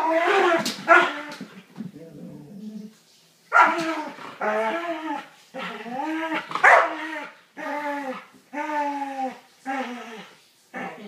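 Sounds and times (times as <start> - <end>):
dog whiny barks: 3.5 - 4.2, 6.4 - 7.2.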